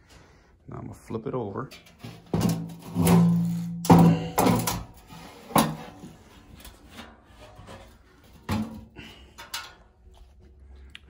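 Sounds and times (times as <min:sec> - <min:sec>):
sheet metal clunking on concrete: 0:01.7 - 0:09.8.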